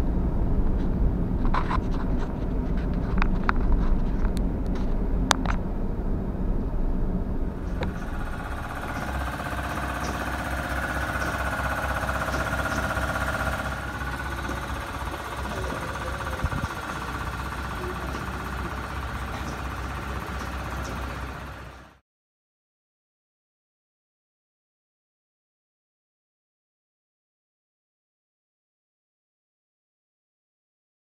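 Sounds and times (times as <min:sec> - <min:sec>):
van road and engine rumble: 0:00.0 - 0:22.0
steady road hiss: 0:07.4 - 0:22.0.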